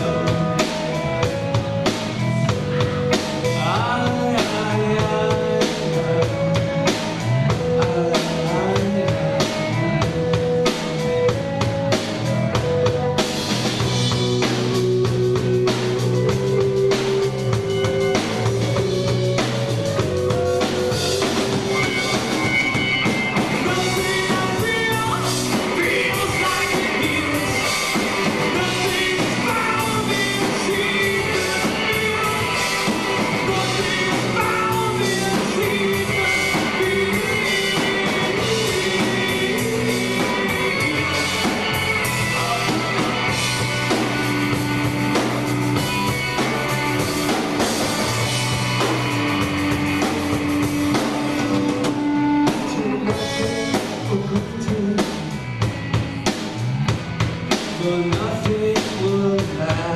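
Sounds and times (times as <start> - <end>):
man singing: 0.0 - 1.5, 2.8 - 10.1, 23.4 - 44.0, 51.4 - 55.6, 57.8 - 59.9
bass guitar: 0.0 - 59.9
drum kit: 0.0 - 59.9
electric guitar: 0.0 - 59.9.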